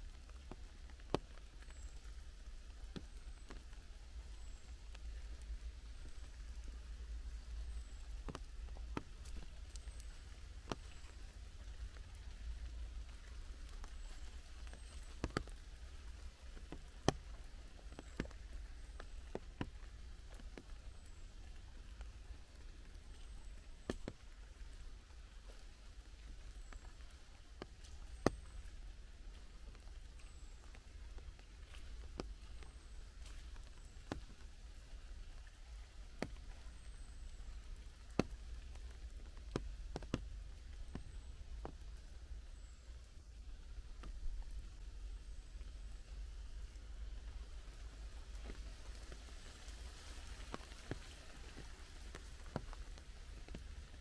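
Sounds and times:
faint hiss: 0:00.0 - 0:54.0
low steady rumble: 0:00.0 - 0:54.0
raindrops tapping: 0:00.0 - 0:54.0.

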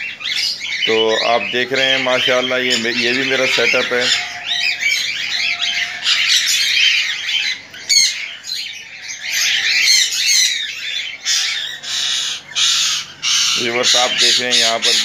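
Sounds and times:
small birds chirping and chattering: 0:00.0 - 0:15.0.

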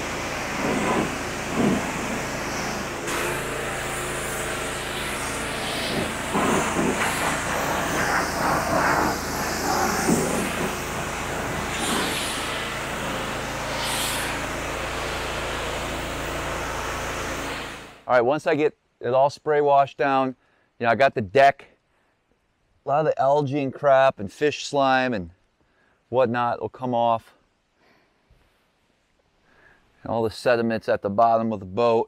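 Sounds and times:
high-pressure spray hissing: 0:00.0 - 0:18.0
pressure washer engine running: 0:00.0 - 0:18.1.

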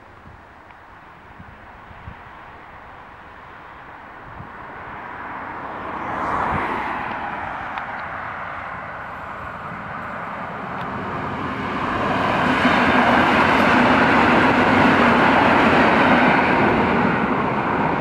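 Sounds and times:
train wheels on rails: 0:07.0 - 0:18.0.

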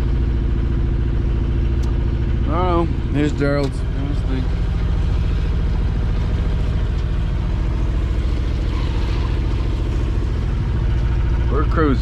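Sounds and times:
outboard motor droning: 0:00.0 - 0:12.0.

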